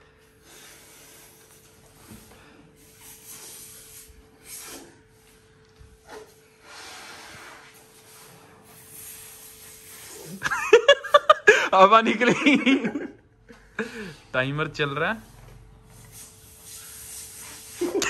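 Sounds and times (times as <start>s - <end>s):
breathy puffs into a balloon: 0.2s - 5.4s, 6.0s - 10.5s
people laughing: 10.4s - 13.2s.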